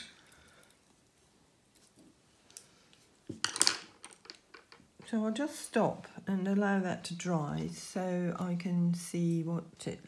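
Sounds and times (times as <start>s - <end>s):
paintbrushes clattering on plastic: 3.3s - 4.8s.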